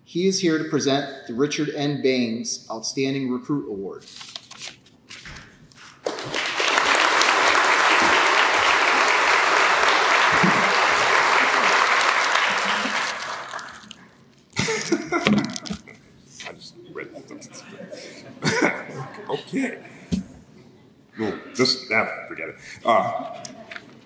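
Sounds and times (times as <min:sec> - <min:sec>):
audience applauding: 0:06.0 - 0:14.1.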